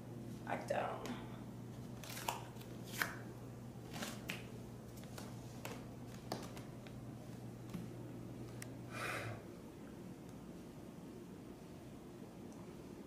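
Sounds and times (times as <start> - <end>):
faint low hum: 0.0 - 13.0
woman breathing out: 8.9 - 9.5.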